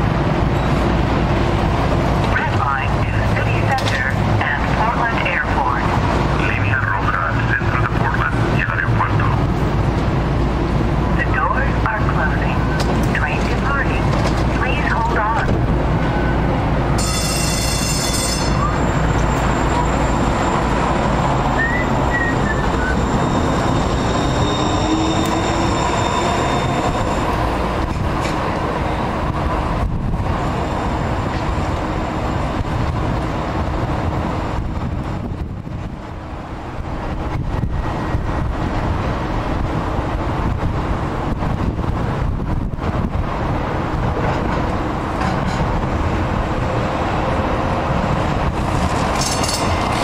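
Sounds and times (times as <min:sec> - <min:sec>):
wheel on rail noise: 0:00.0 - 0:50.0.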